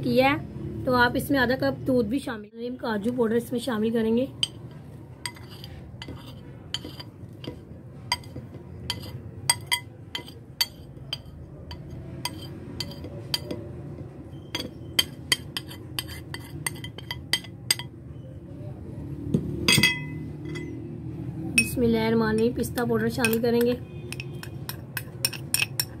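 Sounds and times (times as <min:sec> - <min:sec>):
kitchenware clinking on blender jar: 0:04.4 - 0:13.7, 0:14.4 - 0:18.0, 0:19.6 - 0:20.8, 0:21.6 - 0:26.0.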